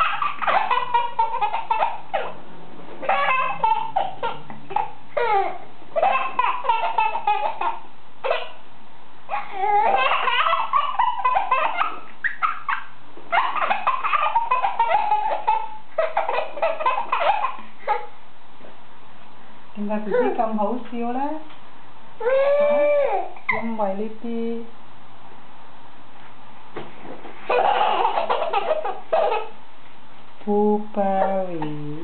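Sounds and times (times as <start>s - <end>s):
baby laughing: 0.0s - 2.4s, 3.0s - 8.6s, 9.3s - 18.2s, 22.2s - 23.6s, 27.5s - 29.6s.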